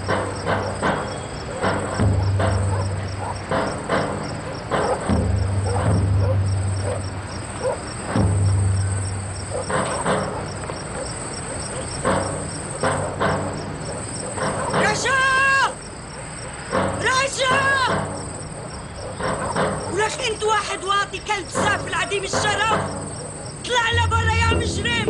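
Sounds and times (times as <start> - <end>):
crickets chirping: 0.0 - 25.0
knocks or steps: 21.4 - 25.0
low hum: 23.9 - 25.0.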